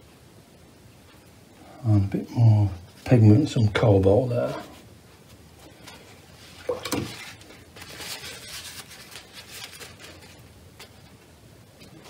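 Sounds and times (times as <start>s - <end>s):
paper tissue rustling: 4.5s - 11.3s.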